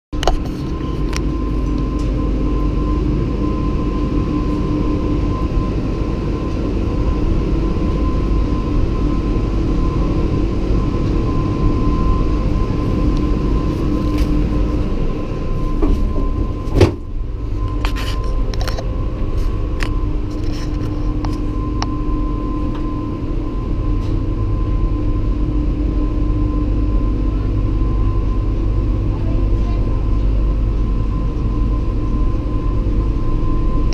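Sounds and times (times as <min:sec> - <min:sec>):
gondola lift mechanical hum: 0:00.2 - 0:33.9
loud clunk: 0:15.8 - 0:17.1.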